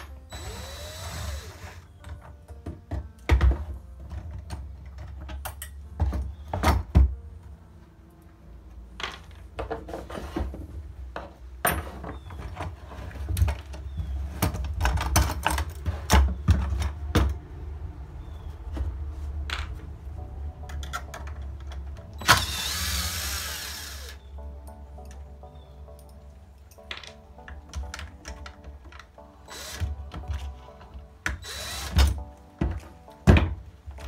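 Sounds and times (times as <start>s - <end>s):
cordless drill driving screw: 0.3s - 1.9s, 22.2s - 24.2s, 29.5s - 29.9s, 31.4s - 32.1s.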